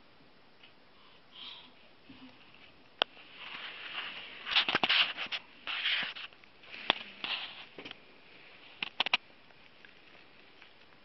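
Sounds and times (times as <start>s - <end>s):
clothing rubbing on microphone: 3.2s - 7.8s
scratchy rustling: 3.2s - 7.8s.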